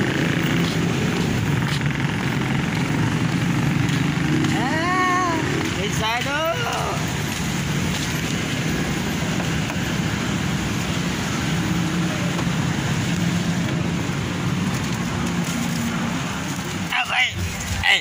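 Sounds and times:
road traffic rumble: 0.0 - 18.0.

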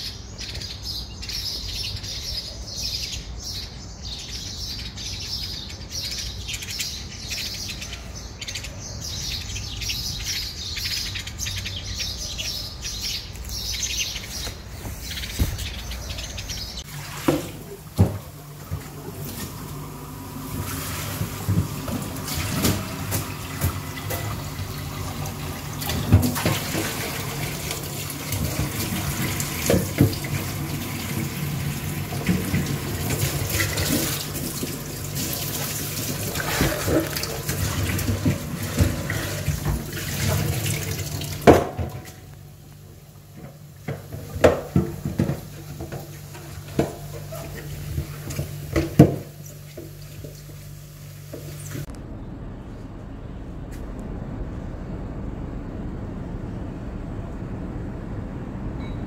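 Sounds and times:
running water rushing: 16.8 - 42.1
low steady hum: 31.7 - 59.0.

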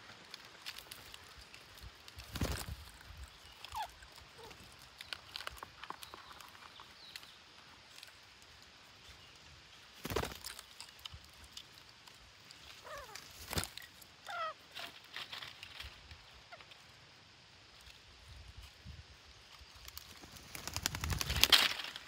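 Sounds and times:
parakeets squawking: 14.3 - 14.6.

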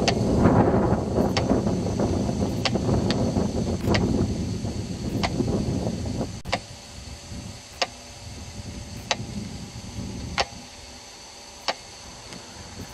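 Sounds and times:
sharp clicks: 2.5 - 3.2, 3.8 - 4.1, 5.1 - 5.4, 7.8 - 8.0, 11.6 - 12.9.

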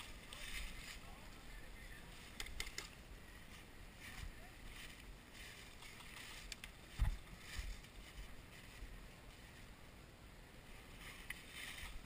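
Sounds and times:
footsteps crunching dry leaves: 3.5 - 9.6.

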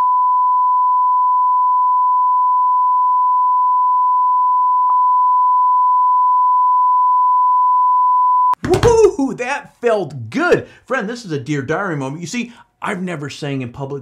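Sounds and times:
censor bleep tone: 0.0 - 8.6.

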